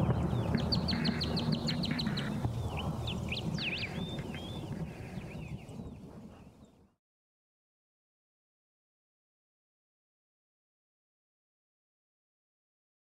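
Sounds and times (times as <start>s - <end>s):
birds chirping: 0.0s - 6.8s.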